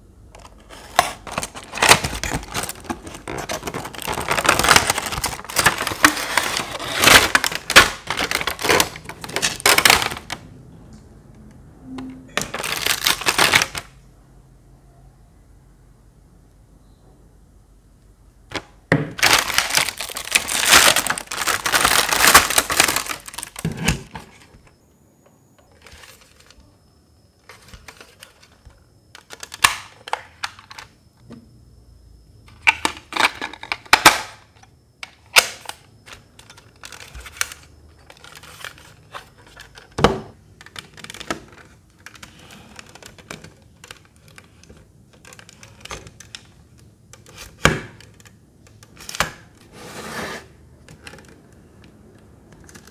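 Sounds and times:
plastic crinkling rustle: 0.6s - 10.4s, 12.5s - 13.9s, 19.2s - 24.5s.

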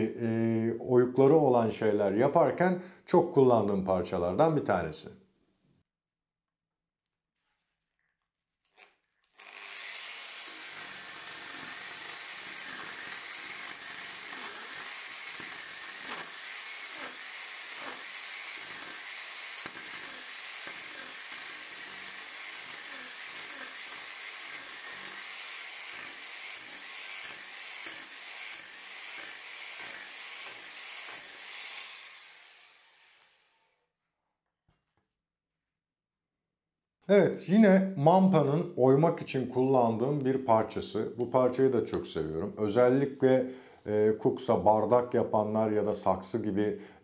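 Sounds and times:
angle grinder carving wood: 8.7s - 33.8s.

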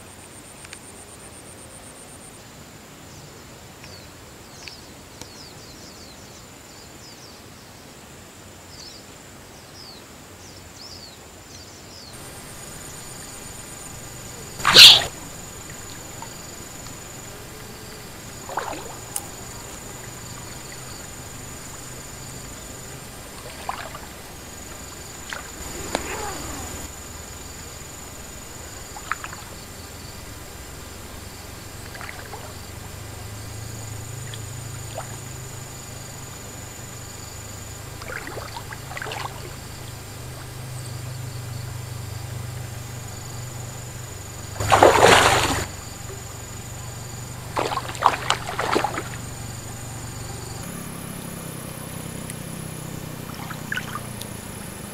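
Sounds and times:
insects droning: 0.0s - 54.9s
fish splashing at surface: 12.2s - 32.9s, 38.0s - 39.6s, 44.6s - 46.2s, 47.4s - 49.4s.

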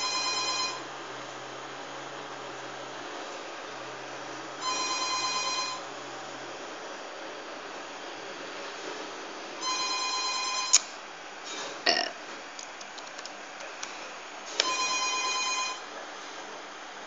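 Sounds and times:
electronic ringing tone: 0.0s - 0.8s, 4.6s - 5.9s, 9.6s - 10.8s, 14.6s - 15.8s.

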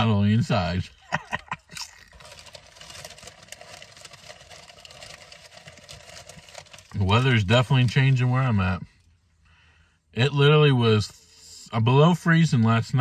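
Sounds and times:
faint steady hum: 0.0s - 13.0s
potato chip crunching: 1.6s - 7.3s.

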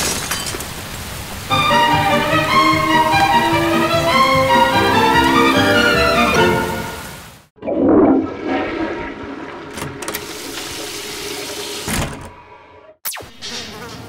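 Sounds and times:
water-like swoosh: 7.5s - 12.6s.

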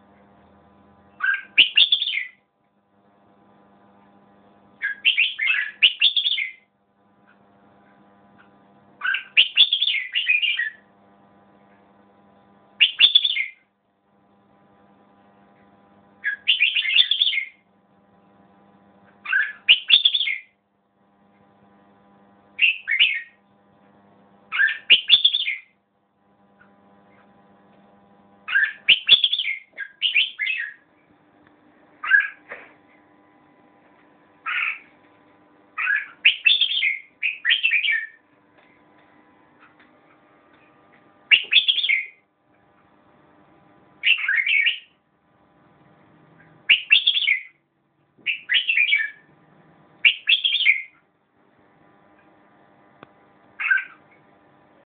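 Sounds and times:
faint steady hum: 0.0s - 54.9s
bulbul singing warbling phrases: 1.2s - 2.4s, 4.8s - 6.6s, 9.0s - 10.8s, 12.8s - 13.6s, 16.2s - 17.6s, 19.3s - 20.5s, 28.5s - 30.8s, 35.8s - 38.2s, 41.3s - 42.2s, 44.0s - 44.9s, 48.3s - 49.2s, 50.0s - 51.0s.

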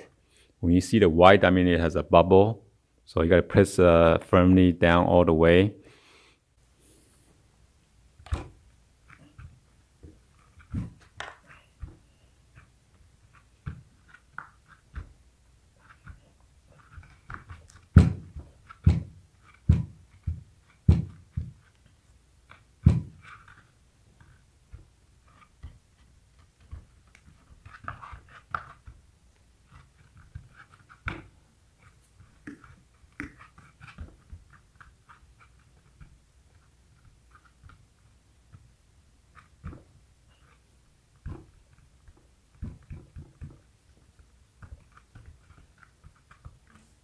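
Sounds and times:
dull thumps on table: 17.2s - 21.6s, 22.8s - 23.2s.

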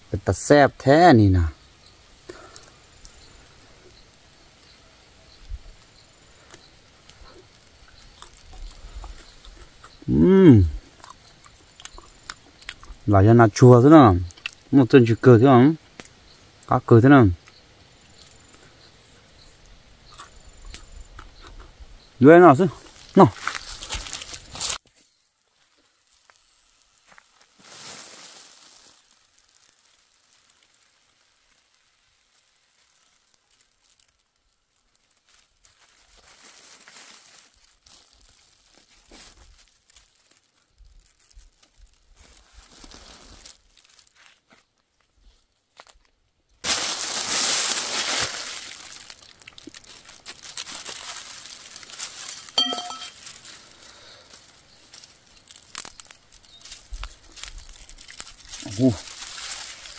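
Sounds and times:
plastic bag crinkling and tearing: 22.8s - 44.4s, 46.6s - 59.9s.

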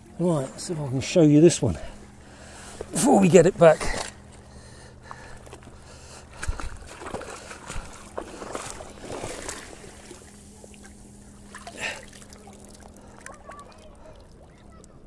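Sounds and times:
seawater sloshing and splashing: 5.1s - 15.0s.

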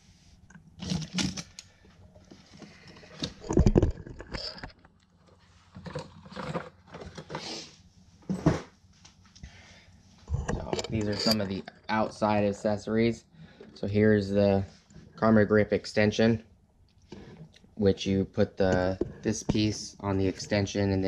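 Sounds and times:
handling cardboard and plastic: 0.3s - 8.7s.

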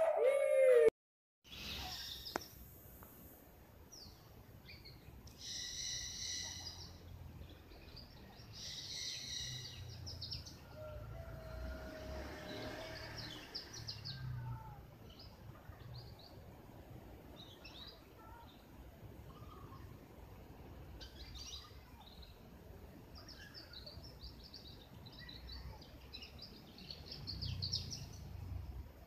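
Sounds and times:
birds chirping: 1.5s - 2.7s, 12.5s - 20.1s
buzzy bird calls: 19.2s - 20.0s.

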